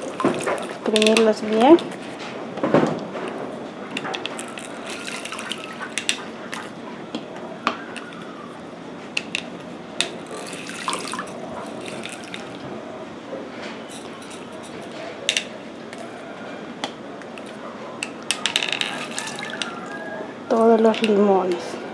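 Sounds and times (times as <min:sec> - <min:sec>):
juice trickling into water: 0:00.0 - 0:01.1, 0:04.2 - 0:06.8, 0:10.0 - 0:12.7, 0:18.4 - 0:20.2.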